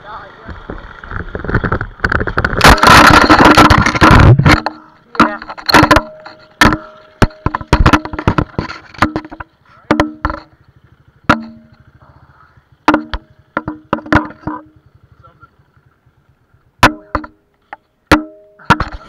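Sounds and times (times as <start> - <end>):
camera banging against helmet: 0.5 - 10.6, 12.8 - 14.8, 16.8 - 19.0.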